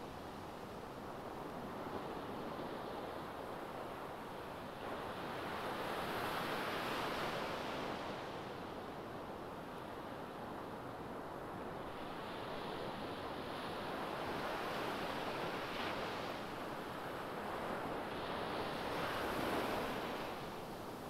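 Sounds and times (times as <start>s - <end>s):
waves breaking on a beach: 0.0s - 21.0s.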